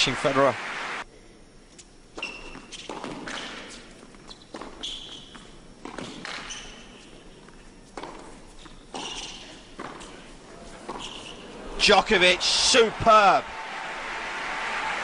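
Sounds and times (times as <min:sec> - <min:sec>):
tennis shoes squeaking: 0:01.8 - 0:11.7.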